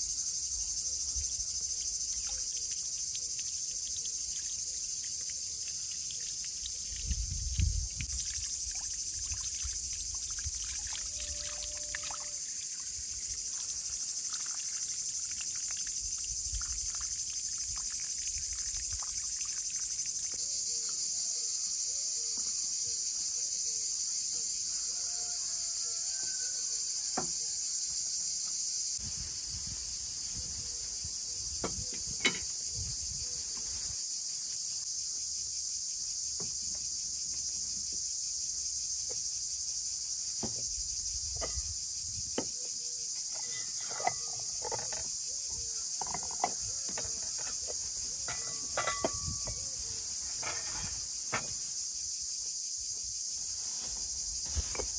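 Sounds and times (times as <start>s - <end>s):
insects chirping: 0.0s - 54.9s
clay pots set on table: 31.6s - 32.5s, 43.3s - 45.2s, 46.0s - 51.6s.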